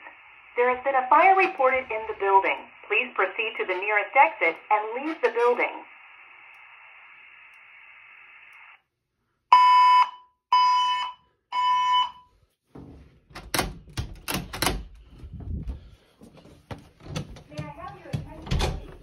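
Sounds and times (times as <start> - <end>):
fire alarm beeps: 9.5 - 12.3.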